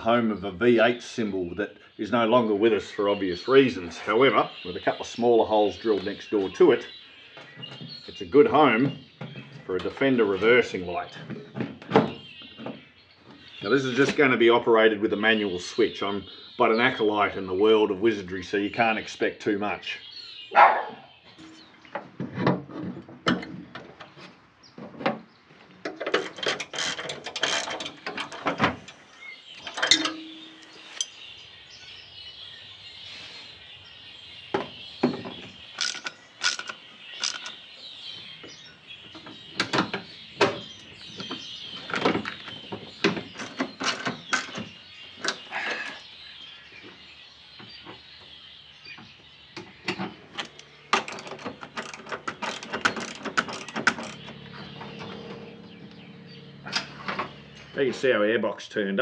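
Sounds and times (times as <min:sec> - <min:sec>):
birds chirping faintly: 0:00.0 - 0:59.0
tools and parts clicking and rattling: 0:25.8 - 0:31.2, 0:35.1 - 0:37.6, 0:39.2 - 0:45.4, 0:49.9 - 0:55.4.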